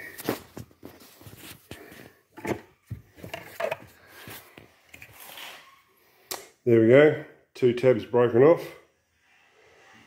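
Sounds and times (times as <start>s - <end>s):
phone handling rustling: 2.4s - 4.0s.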